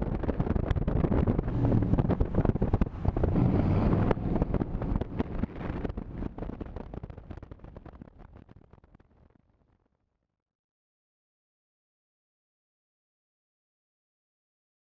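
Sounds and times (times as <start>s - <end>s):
car road and engine noise: 0.0s - 8.3s
wind buffeting camera: 0.0s - 9.0s.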